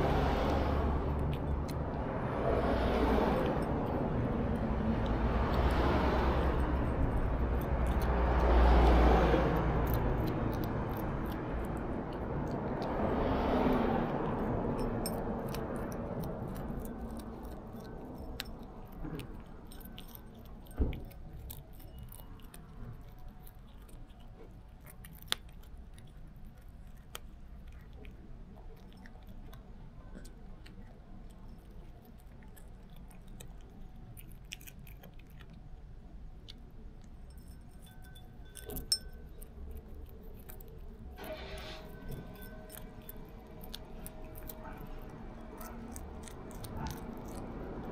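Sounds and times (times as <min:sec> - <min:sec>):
cat crunching dried fish: 0:00.0 - 0:47.9
vehicles passing rumble: 0:00.0 - 0:47.9
thump: 0:20.8 - 0:21.0.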